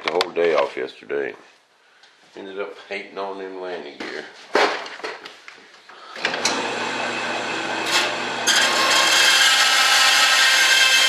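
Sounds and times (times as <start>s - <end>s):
bandsaw motor humming: 6.2s - 11.0s
saw blade grinding metal: 6.3s - 11.0s.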